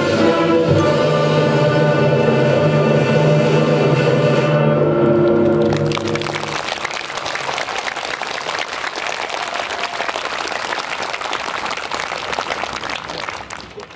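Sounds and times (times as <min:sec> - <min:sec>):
audience applauding: 0:05.2 - 0:13.9.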